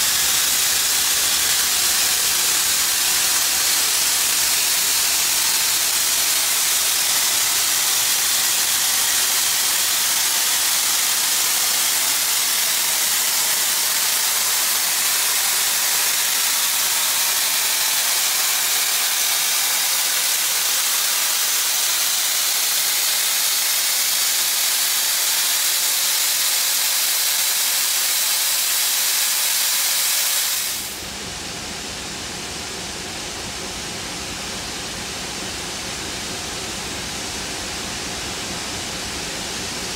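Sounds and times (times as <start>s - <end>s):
steam locomotive venting steam: 0.0s - 39.9s
low steady noise: 30.8s - 39.9s.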